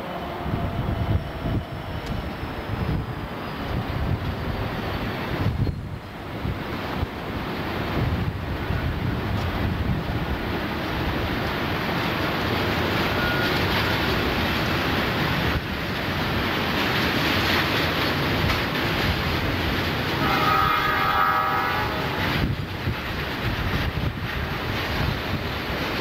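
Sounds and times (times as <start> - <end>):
train wheels rumbling on rails: 0.0 - 26.0
train horn: 13.1 - 13.9, 20.2 - 22.5.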